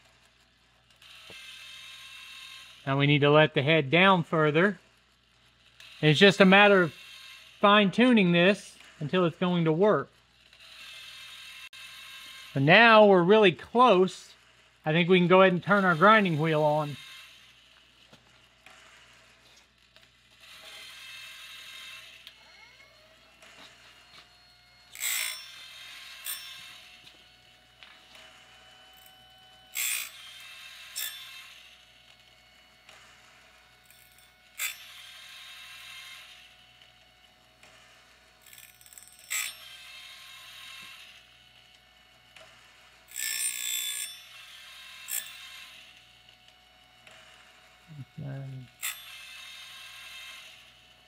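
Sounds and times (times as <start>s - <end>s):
blade sharpener grinding wheel: 0.0s - 51.0s
ratchet clicking: 10.3s - 12.6s, 24.9s - 27.1s, 29.0s - 32.2s, 32.9s - 36.5s, 37.6s - 41.3s, 42.4s - 46.0s, 48.8s - 50.8s.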